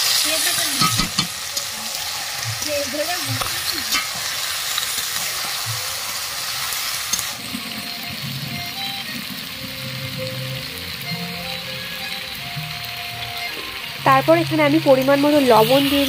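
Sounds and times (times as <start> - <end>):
chicken sizzling in hot oil: 0.0 - 16.0
metal spatula scraping pan: 3.4 - 5.6.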